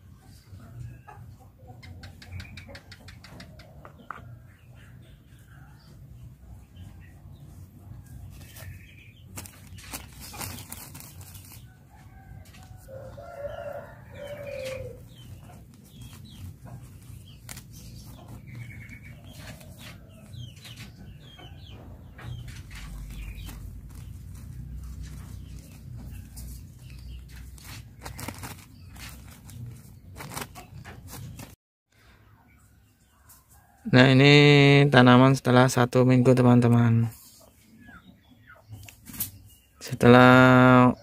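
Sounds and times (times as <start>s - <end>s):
birds chirping: 0.0s - 41.0s
chicken calling: 8.0s - 31.4s.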